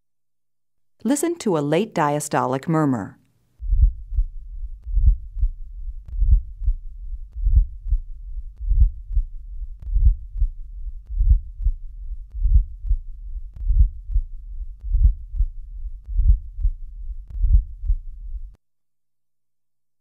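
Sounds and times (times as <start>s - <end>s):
heartbeat through stethoscope: 3.6s - 18.6s
low rumbling heart murmur: 3.6s - 18.6s.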